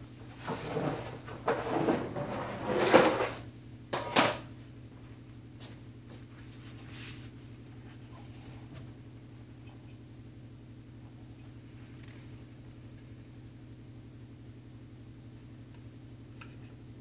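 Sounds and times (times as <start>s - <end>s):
steady low hum: 3.4s - 17.0s.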